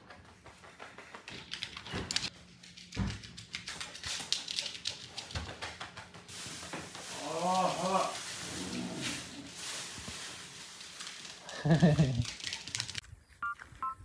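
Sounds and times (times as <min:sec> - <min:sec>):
dog claws clicking on hard floor: 0:00.1 - 0:06.3, 0:11.1 - 0:13.0.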